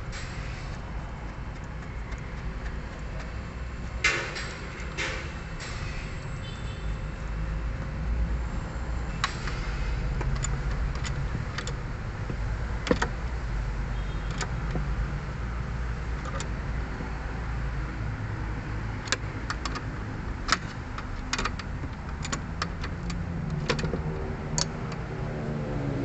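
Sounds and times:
steady low rumble: 7.0 - 13.9
wrench metallic clicks: 9.2 - 13.2, 19.0 - 25.1.

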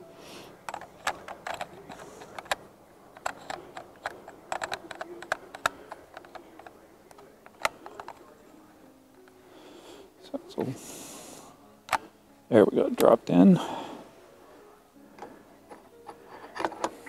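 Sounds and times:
camera parts clicking: 0.6 - 8.3, 15.7 - 17.0.

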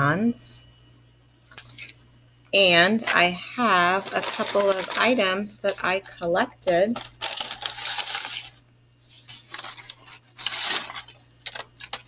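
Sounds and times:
paper bag crinkling: 3.9 - 5.8, 6.9 - 12.0.

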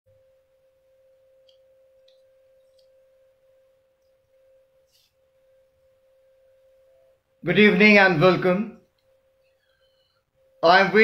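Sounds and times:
faint steady hum: 0.1 - 11.0
faint small ticks: 1.4 - 3.0.

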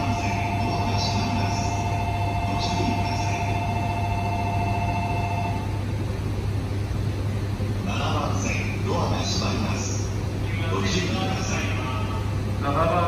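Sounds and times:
two-note electronic signal tone: 0.0 - 5.7
low hum: 0.0 - 13.0.

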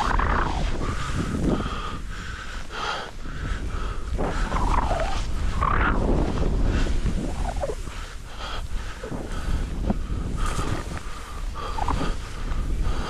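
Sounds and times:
wind rumbling on microphone: 0.0 - 13.0
skis scraping over snow: 3.8 - 8.2, 8.8 - 13.0.

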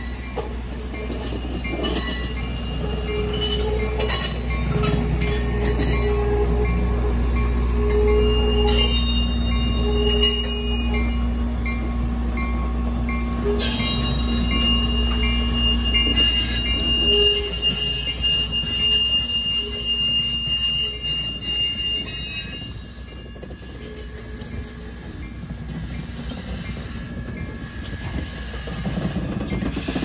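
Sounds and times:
train rolling past: 0.0 - 30.0
high-pitched wheel squeal: 1.2 - 7.2, 7.8 - 11.2, 13.4 - 25.1.

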